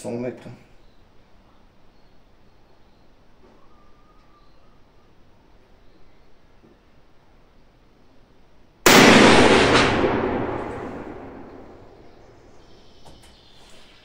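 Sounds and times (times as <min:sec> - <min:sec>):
rifle shot: 0:08.8 - 0:12.6.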